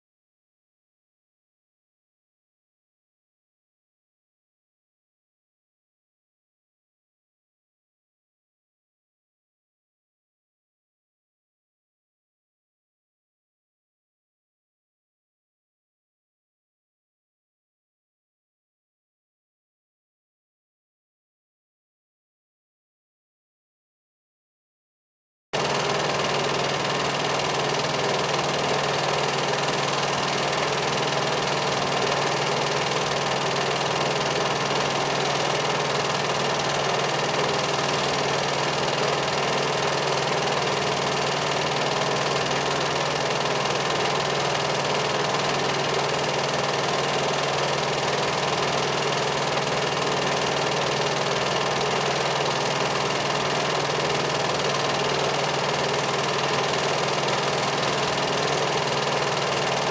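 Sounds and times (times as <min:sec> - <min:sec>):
film projector running: 0:25.6 - 0:59.9.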